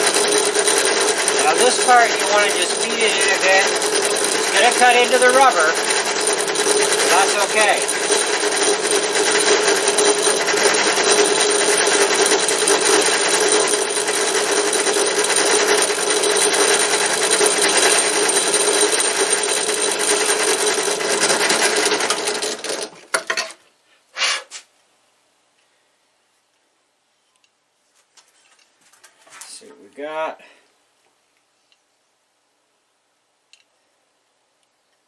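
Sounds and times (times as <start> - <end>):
drill press grinding whir: 0.0 - 23.5.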